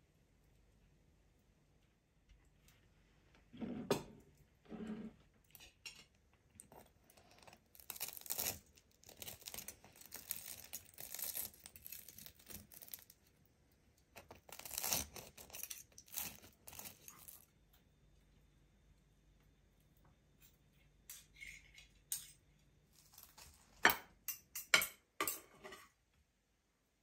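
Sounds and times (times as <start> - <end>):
cutlery scraping crisp rice: 7.5 - 13.1, 14.2 - 17.4, 21.1 - 25.9
cutlery clinks: 23.9 - 25.8.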